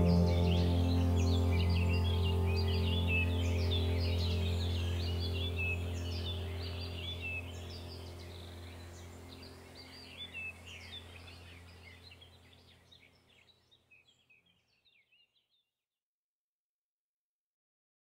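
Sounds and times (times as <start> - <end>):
low steady hum: 0.0 - 13.5
small birds chirping: 0.0 - 15.6.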